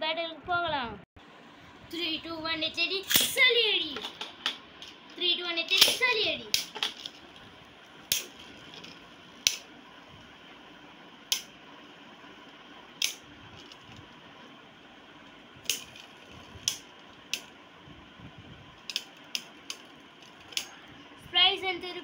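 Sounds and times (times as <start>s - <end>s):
faint steady whirr: 0.0s - 22.0s.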